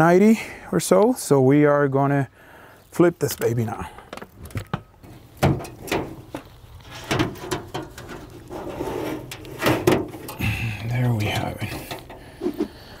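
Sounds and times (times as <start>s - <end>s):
metal rack clanking and scraping: 5.0s - 12.8s.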